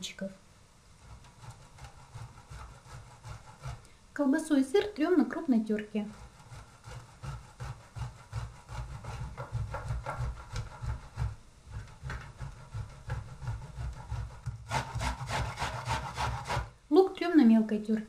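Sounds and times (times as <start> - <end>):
food rasping on a box grater: 1.0 - 3.9, 4.8 - 16.7
grater knocking on wooden board: 6.1 - 16.6.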